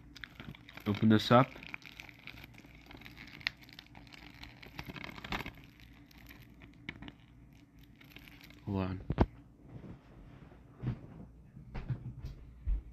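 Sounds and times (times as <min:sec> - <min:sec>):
plastic shrink-wrap crinkling: 0:00.0 - 0:09.3.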